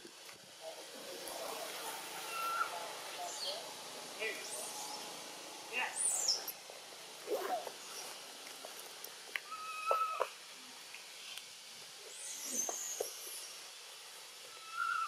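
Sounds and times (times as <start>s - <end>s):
rising and falling animal call: 2.2s - 2.8s, 9.4s - 10.3s, 14.5s - 15.0s
thin high animal call: 2.2s - 2.8s, 9.4s - 10.3s, 14.5s - 15.0s.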